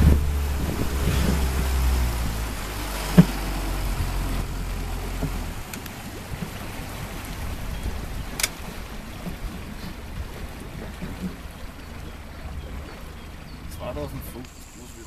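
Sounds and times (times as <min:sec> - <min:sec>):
motorboat engine running: 0:00.0 - 0:15.0
water noise: 0:00.0 - 0:15.0
sharp click: 0:08.4 - 0:08.6.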